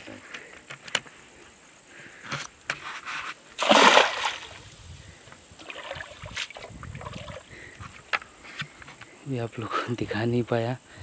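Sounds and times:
loud water splash: 0:03.6 - 0:04.6
small knocks and splashes: 0:03.6 - 0:04.6, 0:05.6 - 0:07.5.

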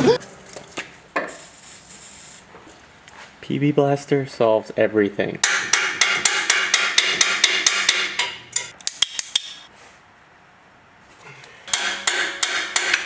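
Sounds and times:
metal tool clicking on metal: 0:06.0 - 0:09.7.

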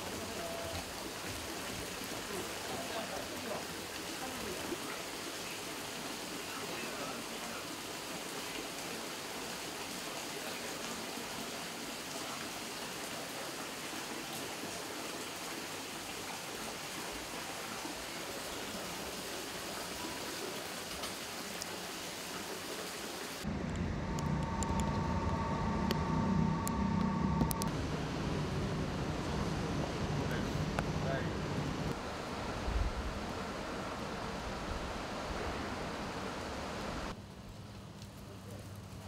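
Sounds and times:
running water rushing: 0:00.0 - 0:23.5, 0:27.4 - 0:37.2.

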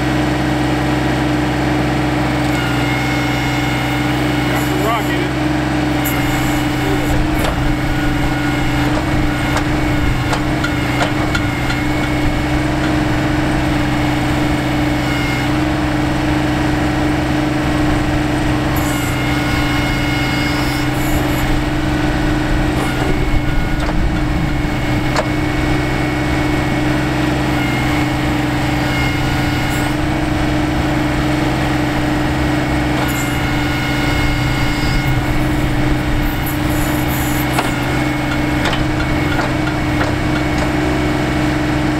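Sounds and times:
tractor diesel engine running: 0:00.0 - 0:41.9.

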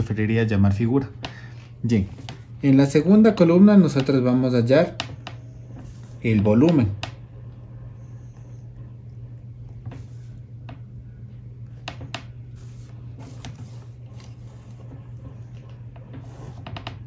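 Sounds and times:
steady low hum: 0:00.0 - 0:17.0
pen drawing along ruler on paper: 0:12.5 - 0:17.0.

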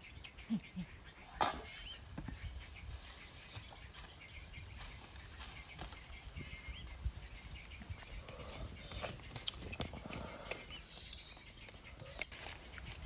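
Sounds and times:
faint bird chirps: 0:00.0 - 0:13.0
footsteps on dry leaves: 0:02.8 - 0:07.6, 0:10.3 - 0:13.0.

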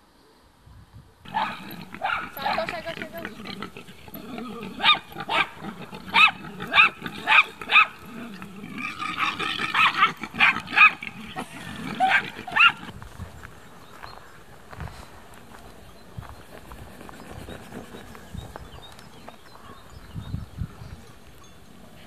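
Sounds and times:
low grunting: 0:01.3 - 0:12.6
animal high yelps: 0:01.3 - 0:13.0.

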